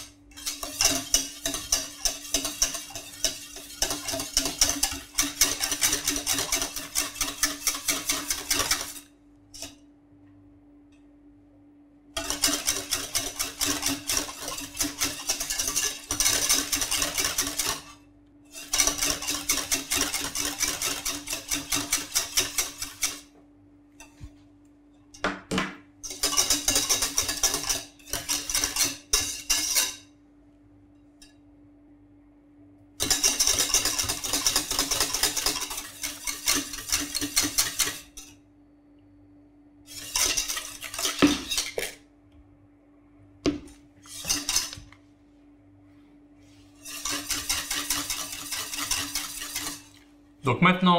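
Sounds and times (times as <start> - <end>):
whisk beating in a metal saucepan: 0.0 - 9.9, 12.1 - 23.4, 26.0 - 30.1, 33.0 - 38.4, 39.9 - 42.0, 44.0 - 45.0, 46.4 - 50.9.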